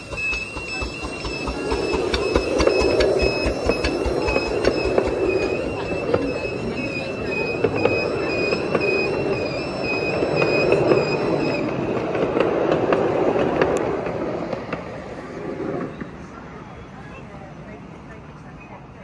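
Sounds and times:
high-pitched wheel squeal: 0.0 - 11.9
small wheels rumbling on rails: 0.0 - 17.3.

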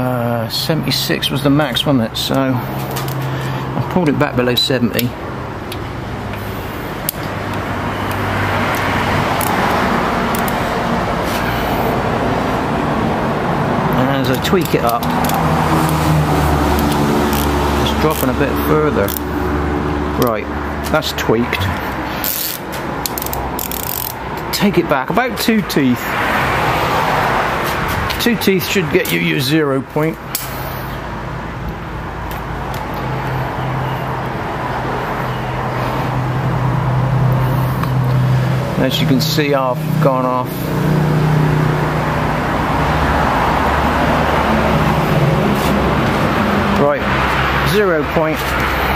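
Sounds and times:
steady rushing noise: 35.8 - 48.9.

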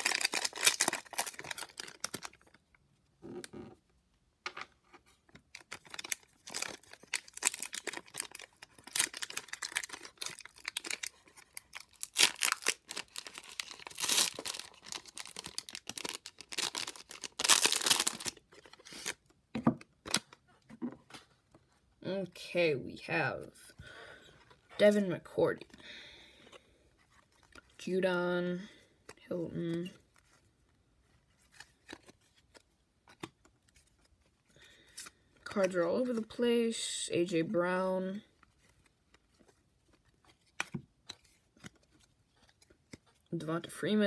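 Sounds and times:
plastic wrapper crinkling and tearing: 0.0 - 2.7, 5.4 - 19.3, 20.0 - 20.4.

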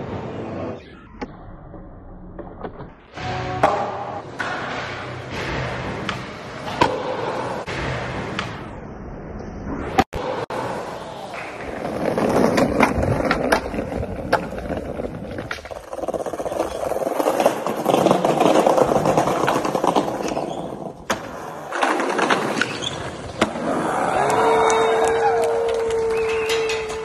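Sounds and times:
skateboard wheels rolling on concrete: 10.2 - 27.0.

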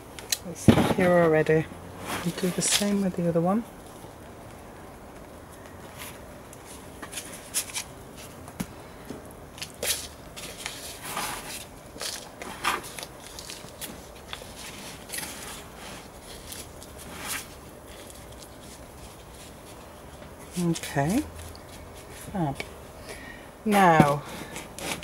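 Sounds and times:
compost rustling against plastic pot: 0.4 - 4.1, 9.5 - 22.9, 23.6 - 25.0.

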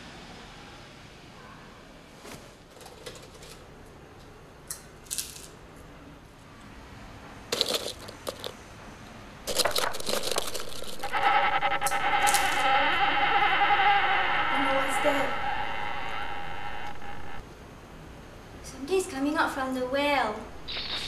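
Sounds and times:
crisps rustling and crunching: 7.5 - 8.6, 9.5 - 11.1
loud buzzing drone: 9.8 - 17.4.

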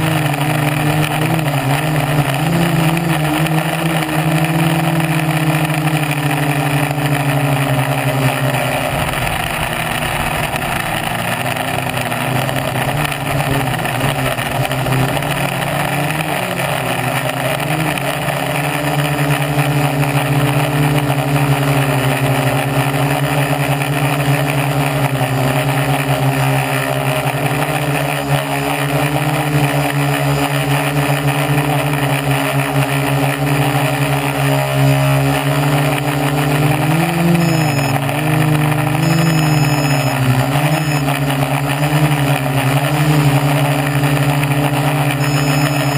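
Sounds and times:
quadcopter motors buzzing: 0.0 - 45.9.

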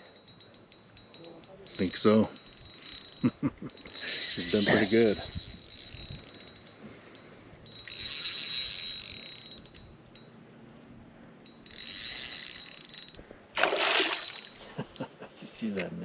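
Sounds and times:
spinning reel whirring and clicking: 0.0 - 10.3, 11.4 - 13.2, 14.1 - 14.7.

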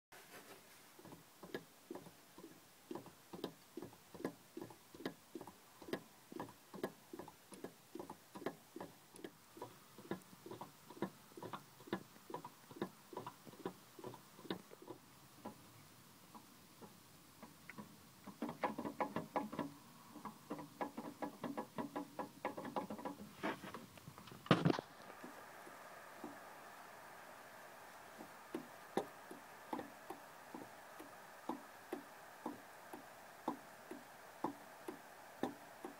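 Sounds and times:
water pump belt ticking: 1.0 - 15.7, 16.3 - 23.4, 25.1 - 35.9.

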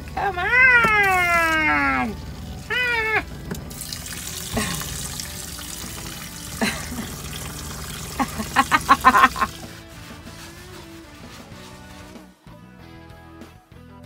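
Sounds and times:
water running from tub faucet: 0.0 - 12.4
water splashing onto feet: 0.9 - 10.3.

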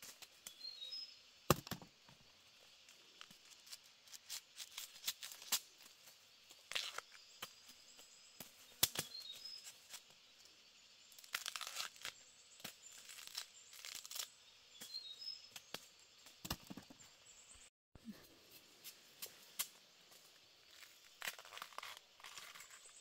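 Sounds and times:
faint bird chirps: 0.4 - 1.3, 6.7 - 18.3
machete knocking on bamboo: 1.5 - 1.9
husk tearing crackles: 11.2 - 12.2, 12.8 - 14.4, 21.1 - 22.9.

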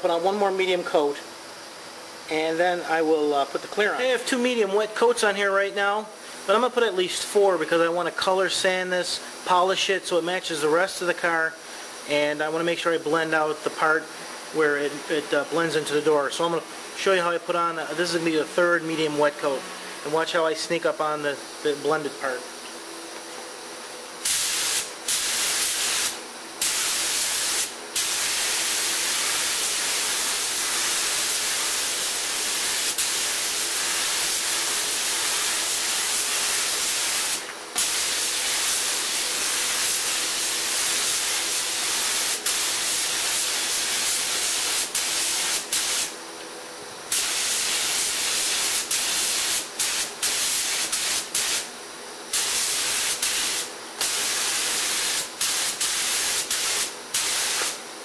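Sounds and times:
paint spray gun hissing: 24.2 - 46.2, 47.1 - 51.7, 52.3 - 57.8.

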